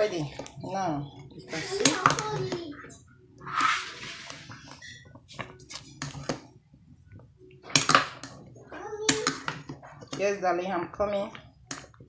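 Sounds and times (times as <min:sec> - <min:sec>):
metal spoon scraping pot: 0:03.4 - 0:06.3.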